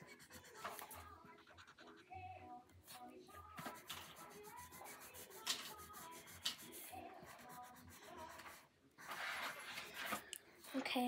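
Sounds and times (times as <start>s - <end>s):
crayon scribbling on paper: 0.0s - 2.2s, 3.6s - 10.2s
sharp scrapes on paper: 3.6s - 10.2s.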